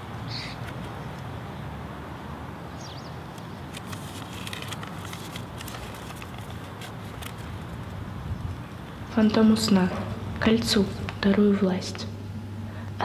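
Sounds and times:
paper crinkling: 0:03.7 - 0:08.0.

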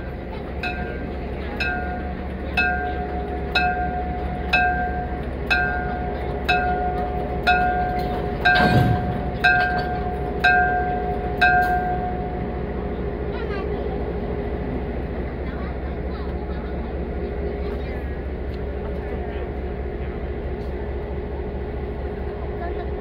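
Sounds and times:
warning bell ringing: 0:00.6 - 0:12.5
low hum: 0:03.6 - 0:12.4
deep rumble: 0:06.5 - 0:12.8.

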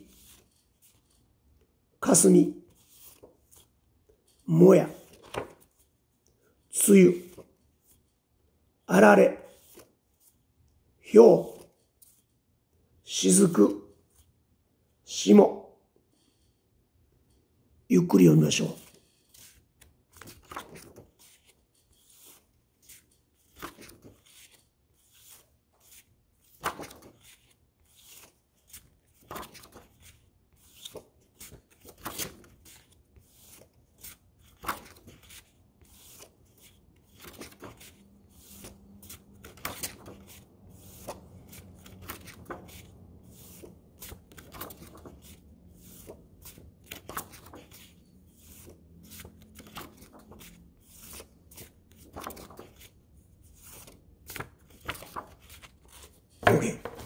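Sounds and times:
paper cards rustling: 0:00.0 - 0:01.3, 0:02.2 - 0:05.9, 0:18.2 - 0:57.0
paper clicks and slaps: 0:19.4 - 0:21.5, 0:22.2 - 0:24.6, 0:25.3 - 0:47.9, 0:48.6 - 0:52.9, 0:53.6 - 0:57.0.

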